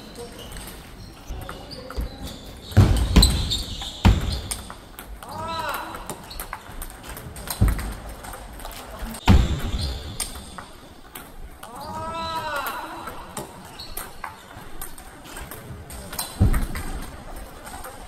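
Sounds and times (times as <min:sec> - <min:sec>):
table tennis balls clicking: 0:00.0 - 0:09.2, 0:09.8 - 0:18.0
heavy thumps: 0:02.7 - 0:04.8.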